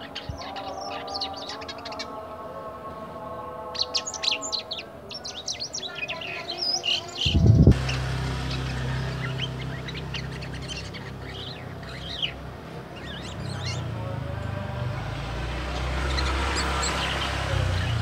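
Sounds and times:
starling twittering: 0.0 - 2.3, 3.7 - 18.0
steady low hum: 7.2 - 16.1.

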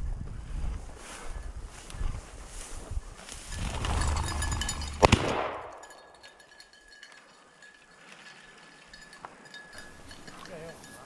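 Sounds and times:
shotgun shot: 5.0 - 5.8.

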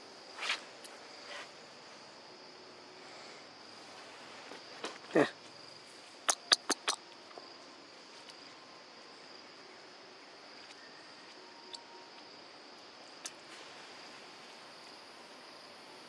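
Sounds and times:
insects droning: 0.0 - 16.0
quick sharp clicks: 6.3 - 7.0.

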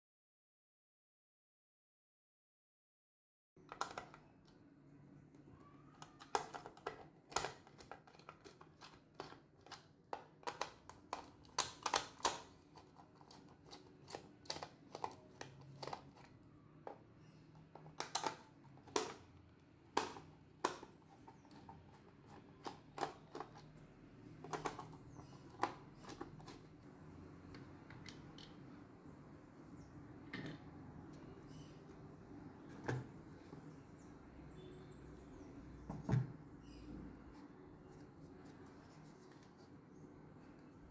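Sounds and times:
handling plastic clock parts: 6.0 - 26.7.

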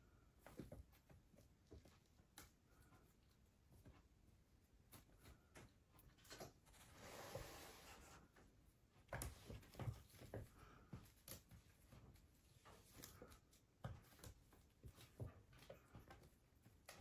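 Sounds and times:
soft rustling: 0.0 - 17.0
kittens pouncing on wooden floor: 0.1 - 4.1, 8.9 - 17.0.

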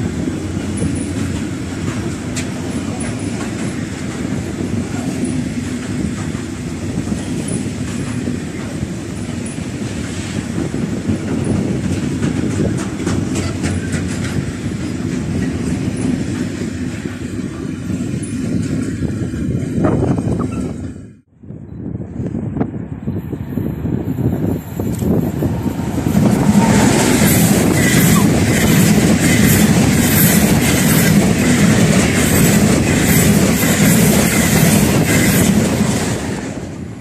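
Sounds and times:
wheels clicking over rail joints: 0.0 - 17.6
steel wheels rumbling on rail: 0.0 - 37.0.

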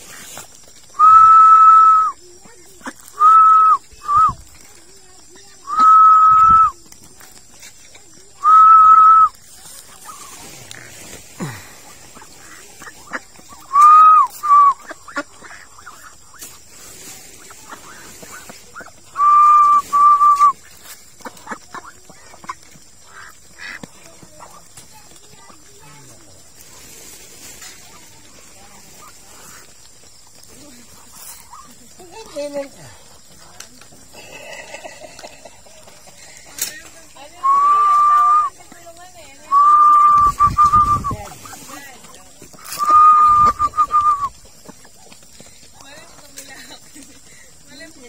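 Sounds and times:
loud whistled notes: 0.9 - 2.2, 3.2 - 4.4, 5.7 - 6.8, 8.4 - 9.4, 13.6 - 14.8, 19.1 - 20.6, 37.4 - 38.6, 39.5 - 41.3, 42.6 - 44.4.

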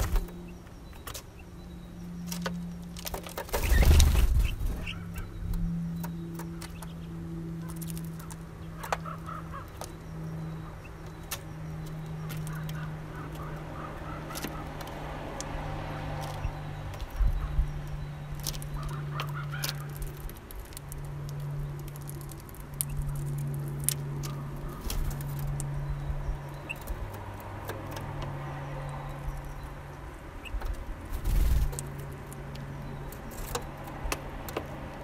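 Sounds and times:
birds pecking seeds: 0.0 - 35.0
faint bird calls: 3.6 - 15.1.

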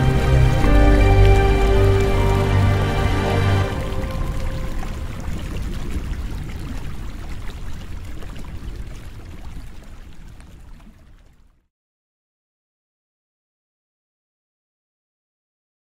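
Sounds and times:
running water splashing: 0.0 - 11.6.

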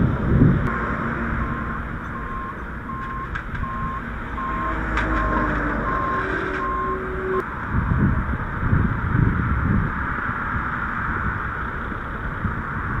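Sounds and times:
low rumble: 0.0 - 10.0
reversing alarm beeping: 0.7 - 7.4.

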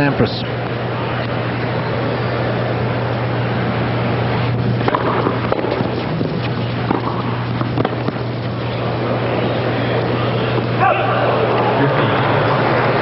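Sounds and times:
steady low hum: 0.0 - 13.0
racquets striking tennis ball: 4.8 - 9.3.

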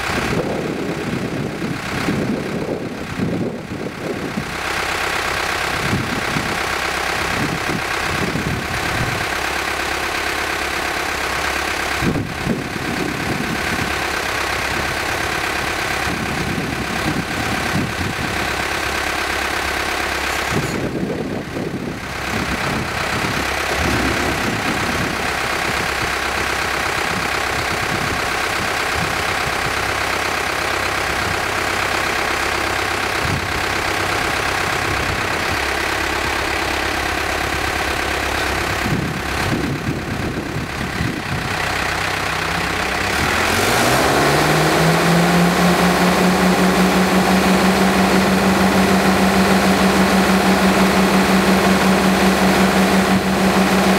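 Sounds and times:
machine engines droning: 0.0 - 53.9
steady machine whine: 33.4 - 53.9.

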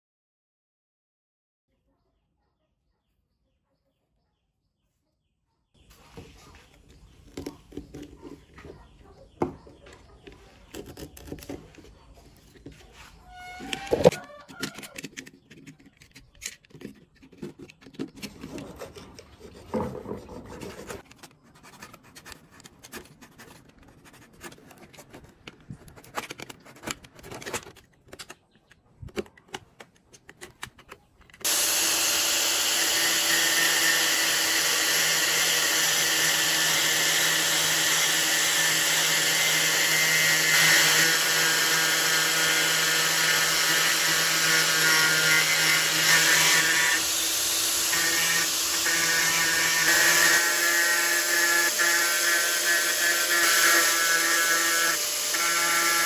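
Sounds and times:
knife blade scraping plastic: 10.2 - 31.5
angle grinder sanding: 31.4 - 56.0.

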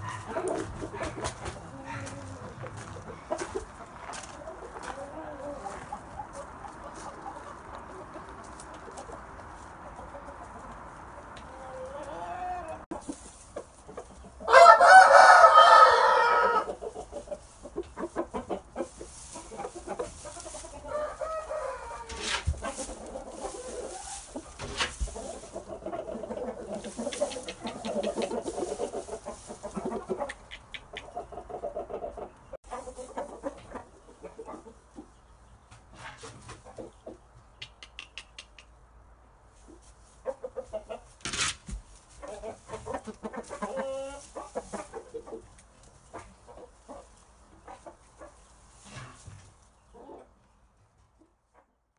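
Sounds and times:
rooster clucking: 0.0 - 35.2, 36.1 - 38.8, 40.2 - 41.2, 42.2 - 45.5
rooster crowing: 14.5 - 16.7, 20.8 - 22.2.

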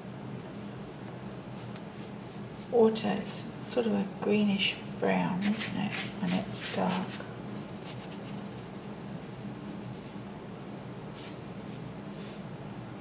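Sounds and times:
steady low hum: 0.0 - 13.0
paintbrush stroking canvas: 0.5 - 2.8, 5.4 - 12.4.

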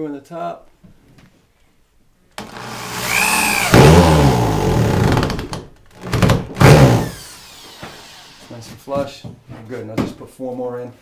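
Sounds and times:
cordless drill driving screw into wood: 2.4 - 8.5.

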